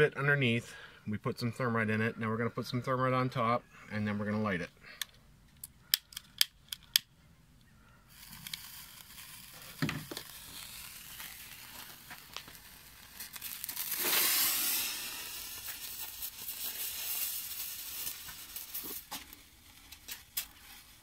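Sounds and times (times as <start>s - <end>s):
crackles: 4.6s - 21.0s
thermite burning hiss: 8.1s - 21.0s.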